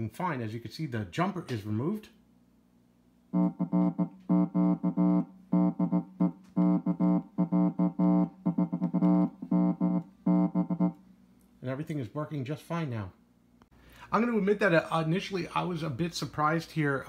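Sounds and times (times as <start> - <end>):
bass amplifier repeating one note: 3.3 - 11.0.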